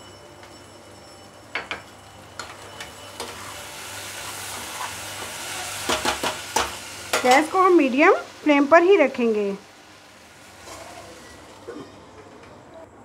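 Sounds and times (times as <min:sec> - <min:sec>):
vegetables sizzling in oil: 0:02.0 - 0:12.1
metal ladle scraping a pan: 0:10.6 - 0:11.4.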